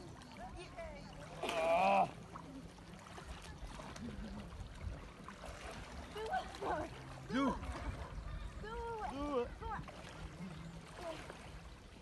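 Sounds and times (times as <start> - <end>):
sea water sloshing: 0.0 - 12.0.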